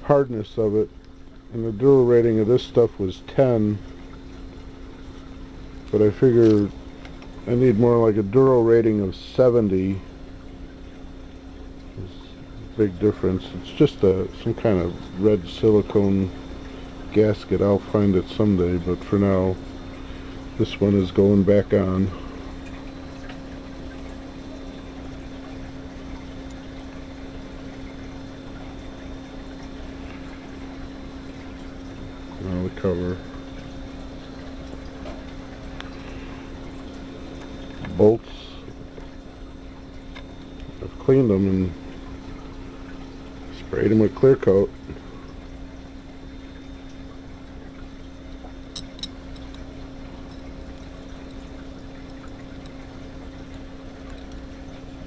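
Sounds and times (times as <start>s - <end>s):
low electrical hum: 0.0s - 55.0s.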